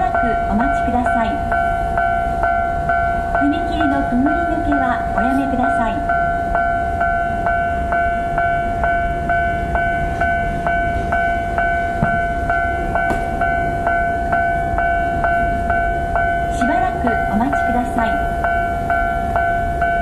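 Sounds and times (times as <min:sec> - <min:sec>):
level crossing warning bell: 0:00.0 - 0:20.0.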